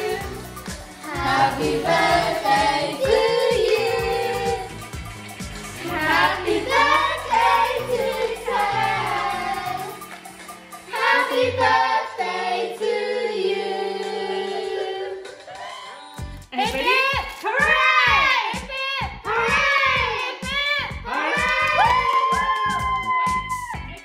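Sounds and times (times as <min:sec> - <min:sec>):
family singing birthday song: 0:00.0 - 0:04.9, 0:05.7 - 0:10.2, 0:10.8 - 0:15.8.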